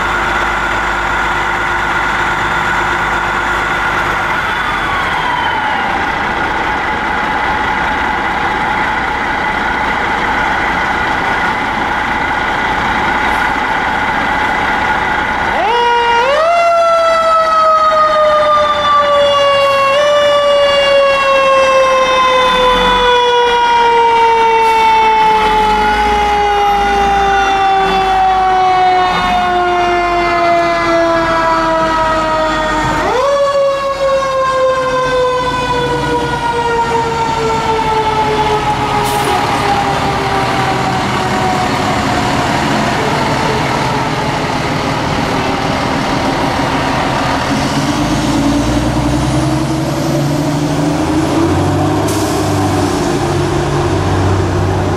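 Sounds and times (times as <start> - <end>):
mechanical siren wailing: 0.0 - 9.8, 15.3 - 45.6
truck engines rumbling: 0.0 - 54.9.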